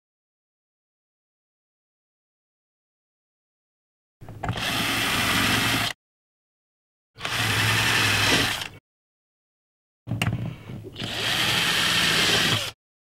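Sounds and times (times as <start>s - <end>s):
cordless drill boring holes: 4.5s - 6.0s, 7.2s - 8.8s, 11.0s - 12.8s.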